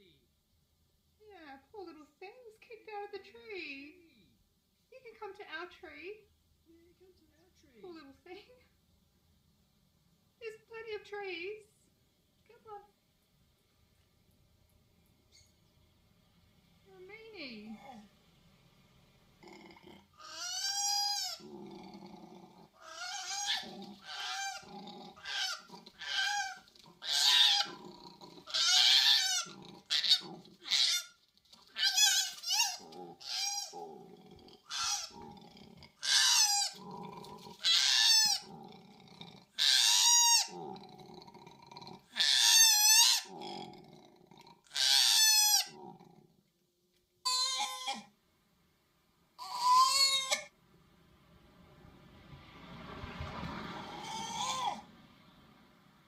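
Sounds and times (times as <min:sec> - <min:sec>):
koalas screaming: 0:20.2 - 0:21.5, 0:22.8 - 0:27.8, 0:28.4 - 0:33.8, 0:34.7 - 0:35.2, 0:36.0 - 0:36.8, 0:37.6 - 0:38.5, 0:39.6 - 0:40.6, 0:42.2 - 0:43.3, 0:44.7 - 0:45.8, 0:47.2 - 0:48.1, 0:49.4 - 0:50.5, 0:53.8 - 0:54.9.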